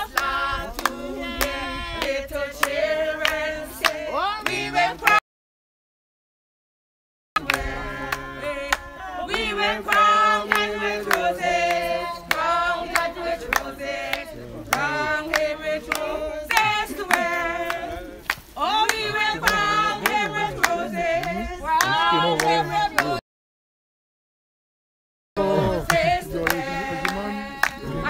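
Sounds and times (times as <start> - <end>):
group of voices singing: 0.0 - 5.2, 7.4 - 23.2, 25.4 - 28.0
handclaps: 0.1 - 5.2, 7.4 - 23.2, 25.7 - 28.0.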